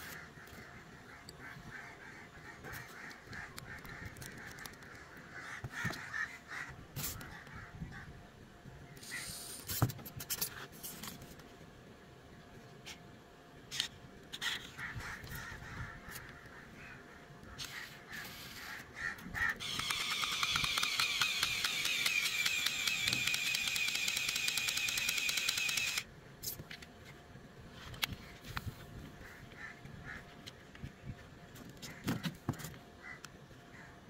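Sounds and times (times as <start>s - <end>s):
toy car motor whirring: 19.6s - 26.1s.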